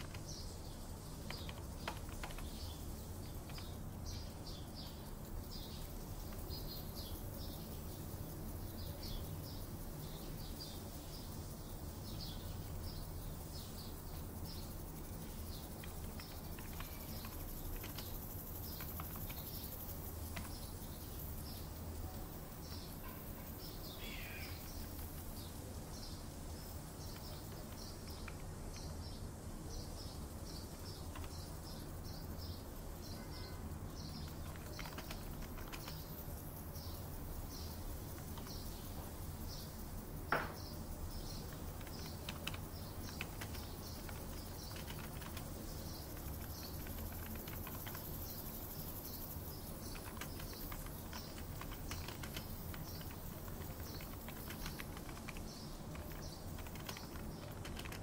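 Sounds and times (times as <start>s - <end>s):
computer keyboard clicks: 0.0s - 0.4s, 1.2s - 4.3s, 15.6s - 20.7s, 24.4s - 25.5s, 27.0s - 29.0s, 30.7s - 31.8s, 34.0s - 36.2s, 38.0s - 38.8s, 41.2s - 48.4s, 49.7s - 58.0s
falling bird call: 24.0s - 24.8s.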